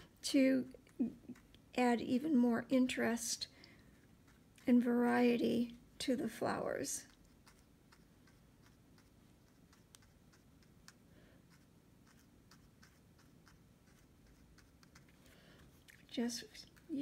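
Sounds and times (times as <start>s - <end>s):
paintbrush scratching on paper: 3.9s - 4.9s, 6.7s - 15.7s.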